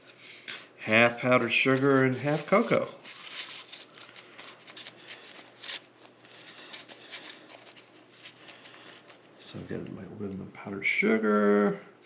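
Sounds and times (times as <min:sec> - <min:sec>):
gloved hand rustling: 0:01.2 - 0:10.0.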